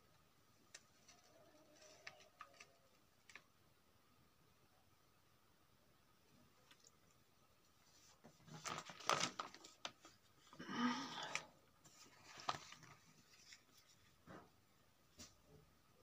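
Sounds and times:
paper rustling: 0.7s - 3.5s, 7.8s - 10.6s, 11.3s - 14.5s.

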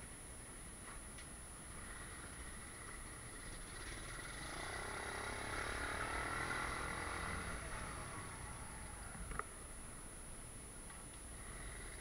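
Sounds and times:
vehicle engine: 1.6s - 10.1s, 11.4s - 12.0s.

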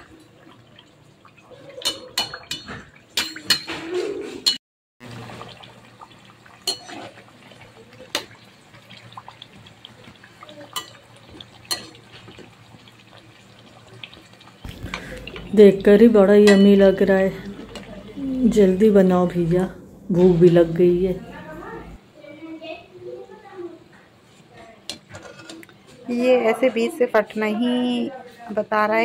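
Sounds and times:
utensils and plate clinking: 1.7s - 4.6s, 6.6s - 7.2s, 10.7s - 12.4s, 16.4s - 17.9s
deep-frying sizzle in oil: 5.0s - 18.6s.

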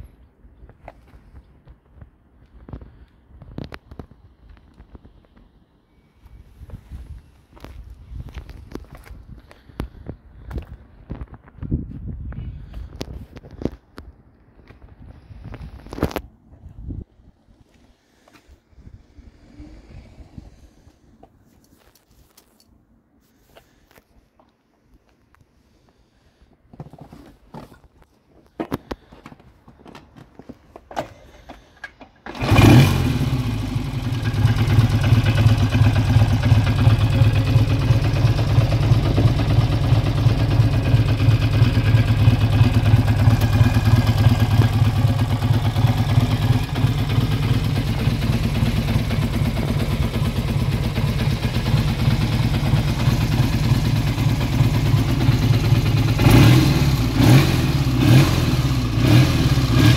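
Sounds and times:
motorcycle engine starting: 30.9s - 59.9s
motorcycle engine idling: 32.3s - 59.9s.

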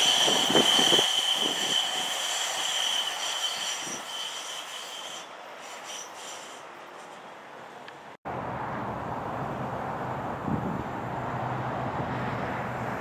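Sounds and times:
train wheels squealing: 0.0s - 7.4s.

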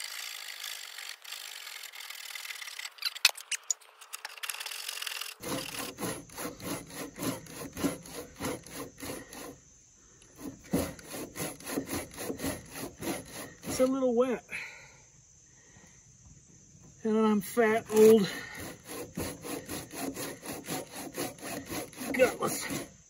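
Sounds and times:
handsaw cutting timber: 0.0s - 2.8s, 4.8s - 9.6s, 10.2s - 14.0s, 17.8s - 23.0s.

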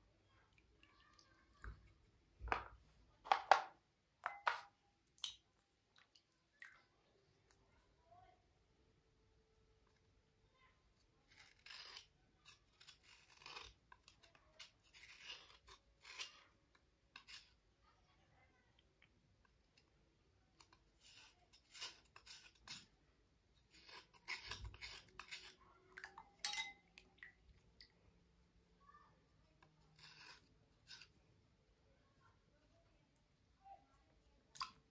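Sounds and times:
scraping and rubbing on slate: 11.3s - 17.6s, 20.6s - 22.9s, 23.6s - 25.6s, 29.6s - 31.2s.

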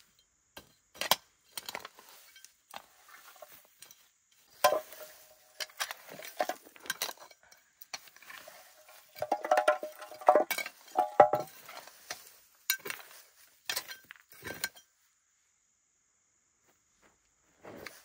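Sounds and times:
dry stems rustling and crackling: 1.1s - 14.8s.

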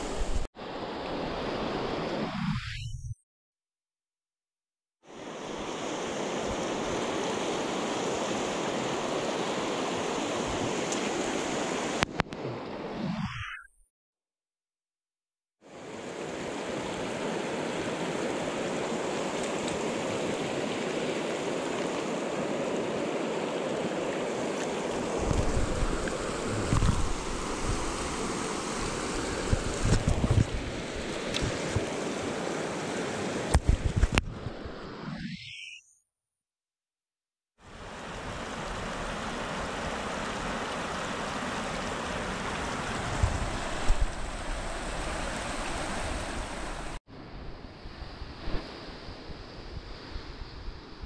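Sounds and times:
river water rushing over stones: 15.8s - 33.6s, 37.8s - 47.0s.

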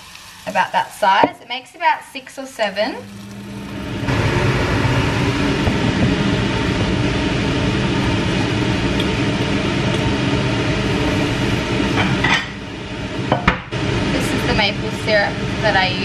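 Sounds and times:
fan or motor whirring: 2.8s - 16.0s
low hum: 3.0s - 15.8s.

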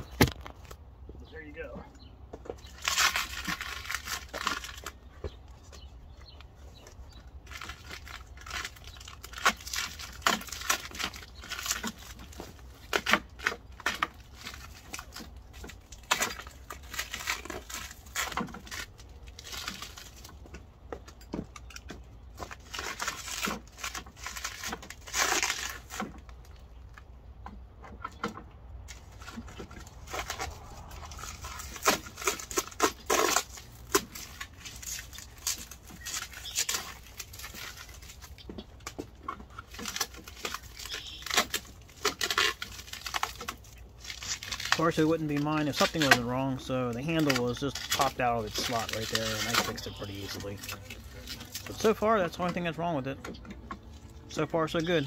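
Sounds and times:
packing material crinkling and tearing: 2.6s - 27.0s, 28.9s - 55.0s.

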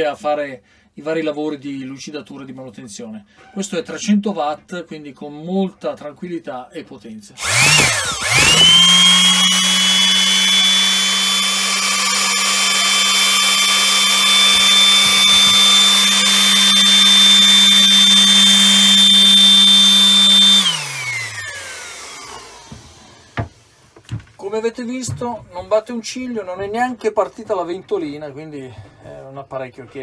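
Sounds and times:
orbital sander humming and whining: 7.4s - 23.7s
sander winding down: 7.4s - 23.7s.

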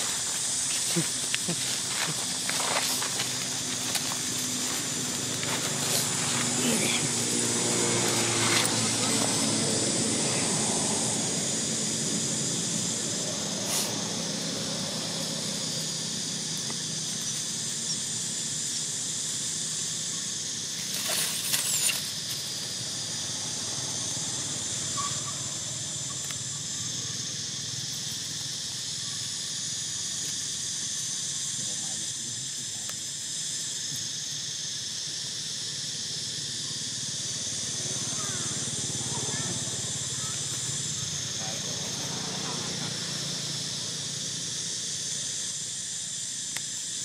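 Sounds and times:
insect chorus drone: 0.0s - 47.0s
low drone: 0.9s - 16.7s.

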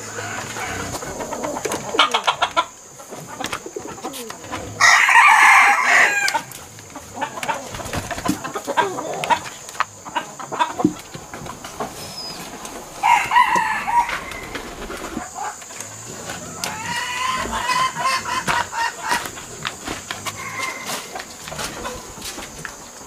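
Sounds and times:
rooster crowing: 0.0s - 2.1s, 4.8s - 6.6s, 12.9s - 19.3s, 20.2s - 21.2s
chickens calling: 0.0s - 23.0s.

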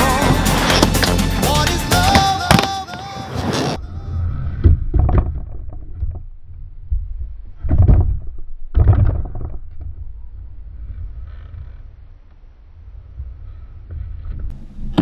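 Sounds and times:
skateboard trucks grinding metal coping: 0.0s - 3.8s.

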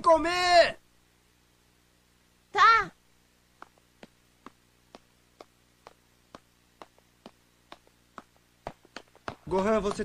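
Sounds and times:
light cartoon footsteps: 3.5s - 10.0s.

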